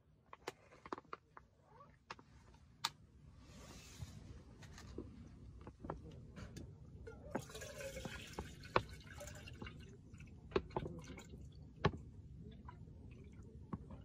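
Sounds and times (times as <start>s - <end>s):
water pouring into a cup: 7.3s - 11.8s.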